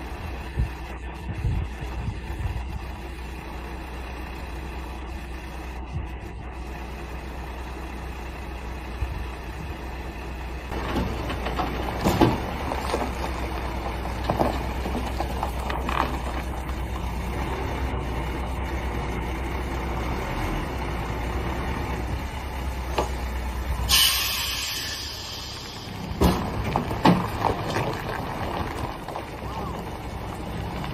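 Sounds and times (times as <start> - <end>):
truck diesel engine rumbling: 0.0 - 30.9
knocks and rattles: 10.7 - 17.0, 26.1 - 29.4.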